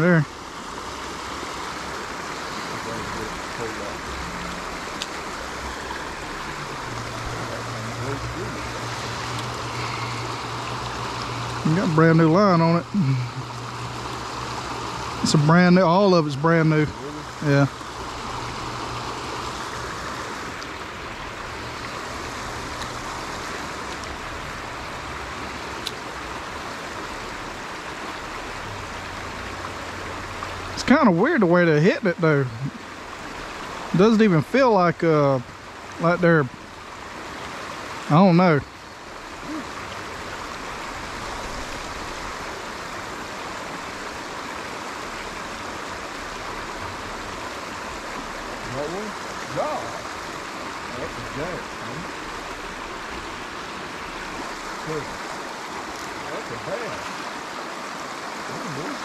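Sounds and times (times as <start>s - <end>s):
creek water rushing: 0.0s - 59.0s.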